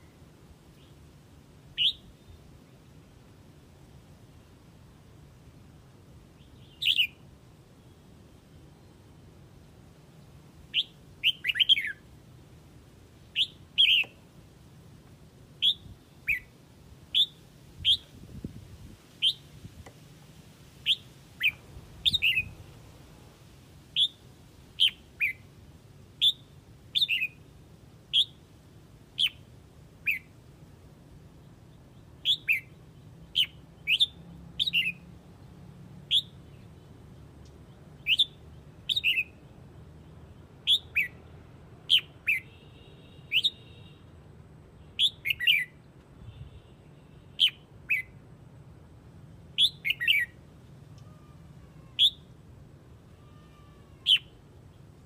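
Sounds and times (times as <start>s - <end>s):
bird chirping: 1.8s - 2.4s, 6.4s - 7.2s, 10.2s - 12.0s, 13.2s - 14.2s, 15.6s - 16.5s, 17.1s - 18.4s, 19.2s - 19.6s, 20.8s - 22.8s, 24.0s - 25.5s, 26.2s - 27.4s, 28.1s - 28.4s, 29.2s - 30.3s, 31.4s - 44.0s, 44.8s - 48.2s, 49.6s - 52.3s, 53.2s - 55.0s.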